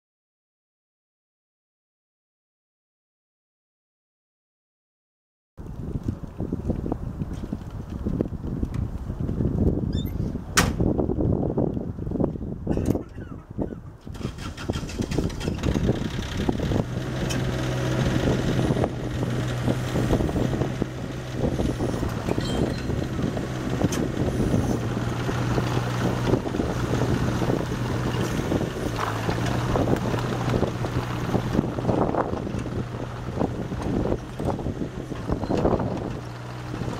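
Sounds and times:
wind buffeting microphone: 5.6 - 36.9
excavator diesel engine running: 14.2 - 36.9.

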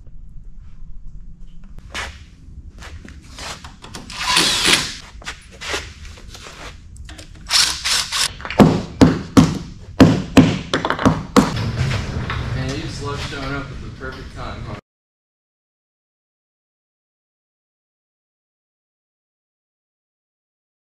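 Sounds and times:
knocks and thuds: 8.5 - 12.7
loud sharp knocks: 8.6 - 12.0.

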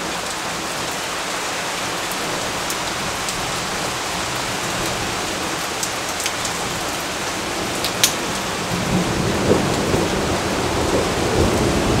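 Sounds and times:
rain falling on leaves: 0.0 - 12.0
low rumble of thunder: 7.6 - 12.0.

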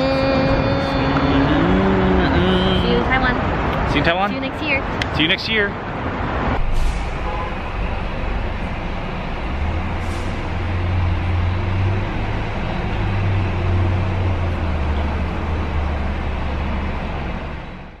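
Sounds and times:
car idling hum: 0.0 - 3.4, 7.1 - 18.0
traffic noise: 0.0 - 18.0.

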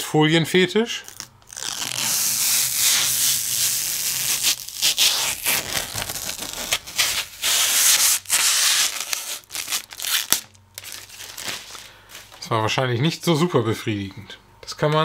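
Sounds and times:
plastic film being peeled off: 1.0 - 12.4.

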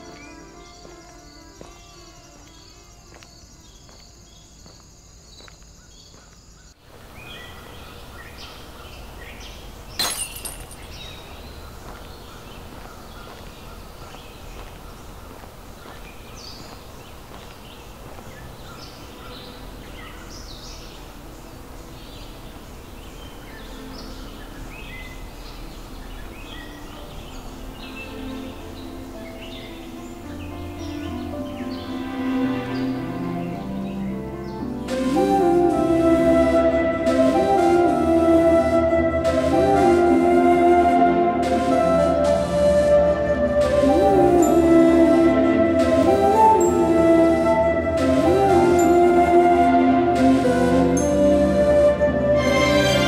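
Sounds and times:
insect trill: 0.0 - 6.8
background noise: 0.0 - 53.0
birds chirping: 0.0 - 53.0.

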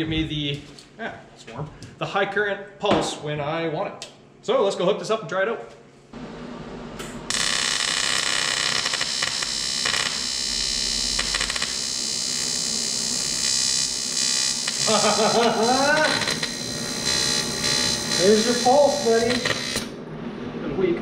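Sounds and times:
welding arc buzzing: 7.3 - 20.0
person speaking: 14.8 - 16.3, 18.2 - 19.4.

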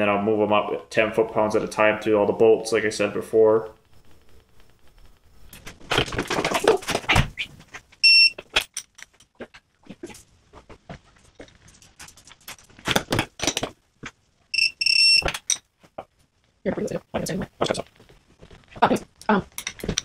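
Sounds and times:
high electronic beeps: 8.0 - 8.4, 14.6 - 15.3.

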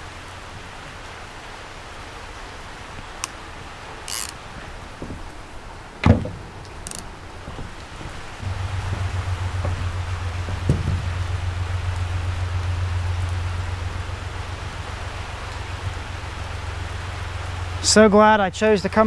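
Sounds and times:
rain falling on water: 0.0 - 19.0
sharp thump: 8.4 - 11.2.

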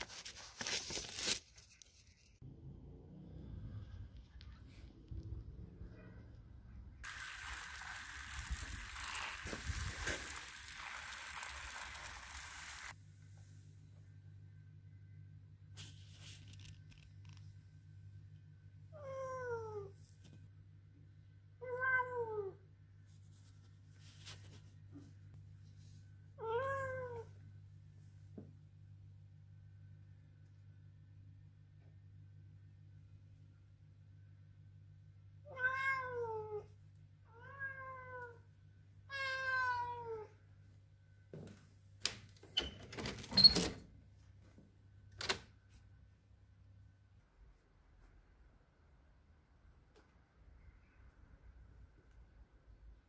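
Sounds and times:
cat meowing: 35.5 - 36.7, 39.1 - 40.3.

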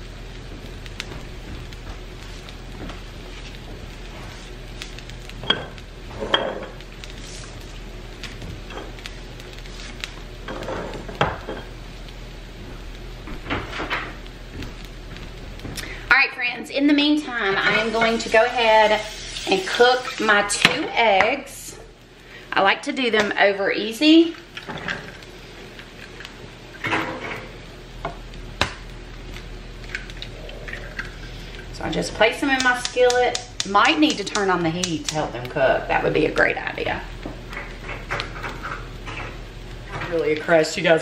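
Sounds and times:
faint sizzling in a skillet: 0.0 - 41.0
egg shell tapping on skillet: 11.1 - 11.7, 28.0 - 29.0, 32.3 - 35.2.

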